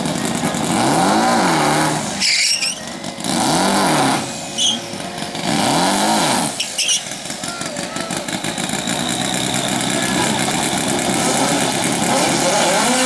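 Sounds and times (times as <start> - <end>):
engine revving in blips: 0.0 - 13.0
short high squeaks: 2.1 - 3.0, 4.4 - 5.0, 6.6 - 7.2.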